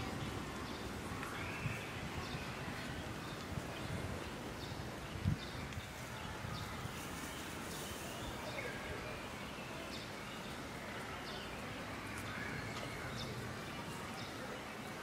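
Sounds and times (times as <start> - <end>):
faint outdoor background noise: 0.0 - 15.0.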